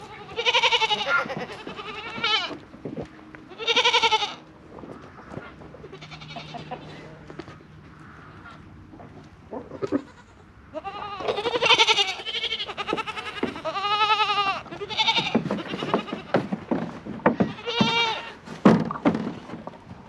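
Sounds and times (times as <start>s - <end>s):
goats bleating: 0.0s - 2.6s, 3.4s - 4.4s, 5.3s - 7.5s, 9.5s - 16.5s, 17.3s - 18.4s
knocks and scuffs: 15.2s - 20.0s.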